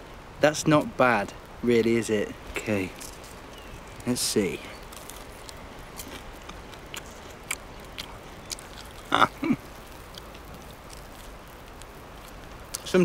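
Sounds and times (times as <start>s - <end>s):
chewing clicks: 4.8s - 12.9s
man murmuring mm: 9.1s - 9.7s.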